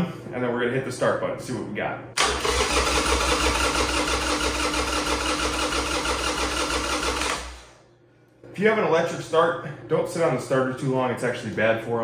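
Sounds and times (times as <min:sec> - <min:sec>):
electric starter cranking engine: 0:02.2 - 0:07.8.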